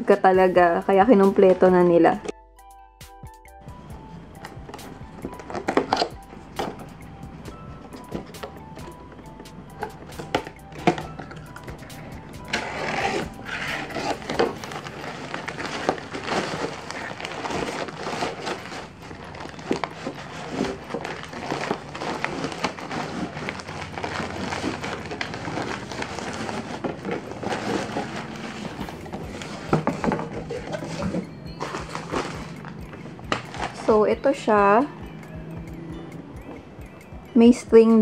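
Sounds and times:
cardboard packaging rustling: 4.3 - 34.0.

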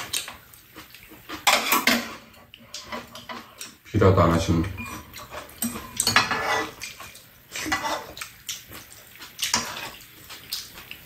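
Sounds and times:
chewing: 0.0 - 3.9, 4.9 - 11.0
spoons scraping and clinking bowls: 1.3 - 3.7, 4.7 - 8.2, 9.4 - 10.0.

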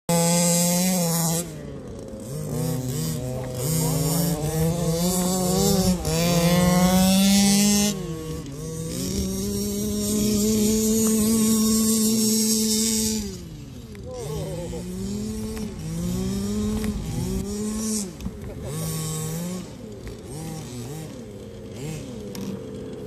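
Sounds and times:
rc car engines revving: 0.1 - 23.0.

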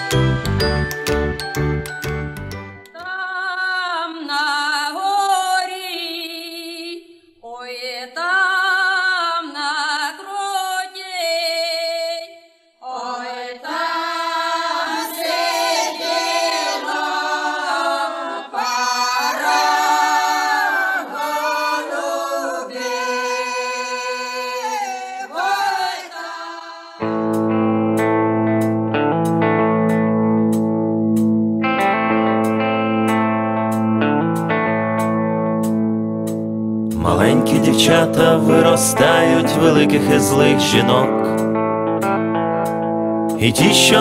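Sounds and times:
a cappella singing: 3.0 - 27.1, 37.0 - 41.4, 43.4 - 44.0.

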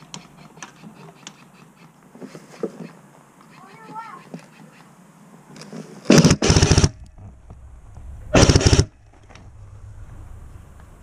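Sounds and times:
airsoft rifle full-auto bursts: 6.1 - 7.0, 8.4 - 8.9.

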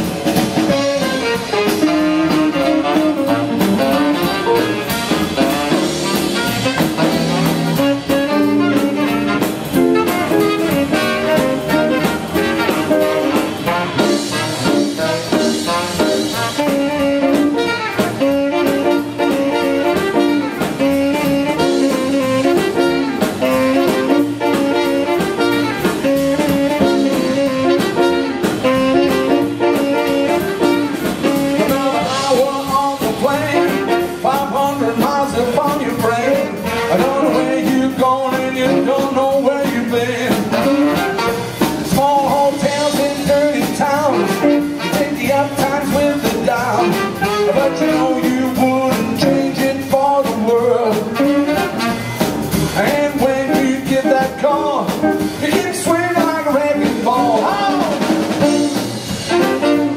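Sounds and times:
steady drum beat: 0.0 - 59.9
tenor saxophone: 0.0 - 59.9
trumpet: 0.0 - 59.9
upright bass: 0.0 - 59.9
man singing: 31.2 - 51.9, 52.7 - 59.8.

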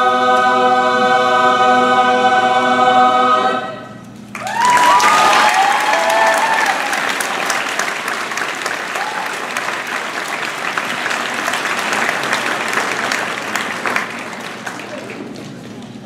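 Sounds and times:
audience applauding: 4.3 - 16.0
whooping cheers: 4.4 - 7.9, 8.7 - 9.7.

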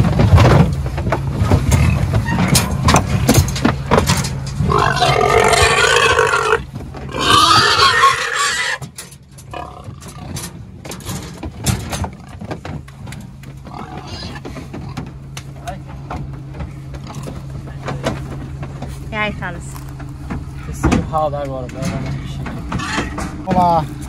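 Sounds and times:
low steady hum: 0.0 - 24.0
pigs squealing: 4.6 - 10.4, 13.6 - 15.0, 22.7 - 23.2.

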